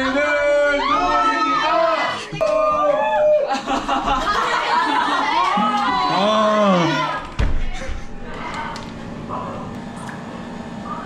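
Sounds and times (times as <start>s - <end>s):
steady low hum: 6.1s - 11.0s.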